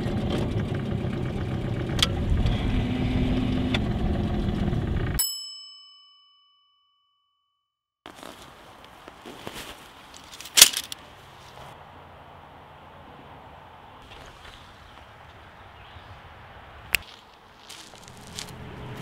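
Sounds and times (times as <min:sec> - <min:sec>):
faint outdoor background: 0:00.2 - 0:19.0
bell-like ding: 0:05.2 - 0:07.6.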